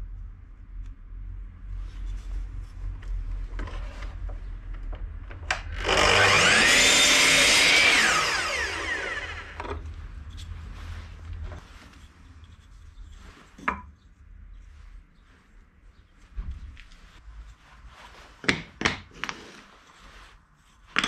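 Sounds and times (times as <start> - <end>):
scraping and handling of wood: 3.1 - 21.0
power tool motor whine: 5.5 - 9.8.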